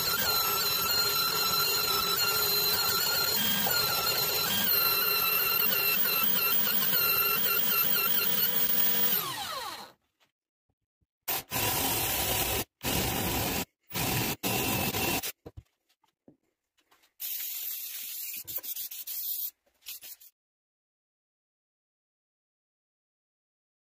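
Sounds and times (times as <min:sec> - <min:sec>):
belt sander squealing: 0:00.0 - 0:09.7
cordless drill boring into wood: 0:00.0 - 0:10.0, 0:11.3 - 0:15.3.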